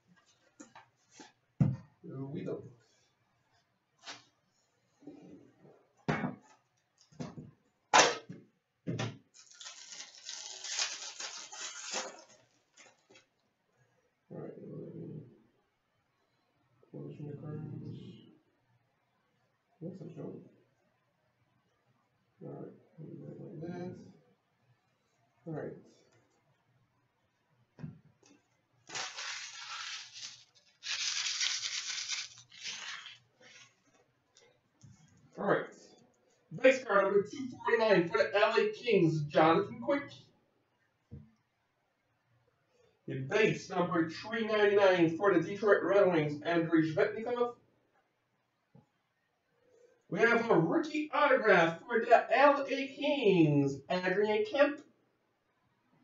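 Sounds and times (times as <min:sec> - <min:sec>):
foil wrapper crinkling and tearing: 0:09.4 - 0:13.1, 0:28.9 - 0:33.8.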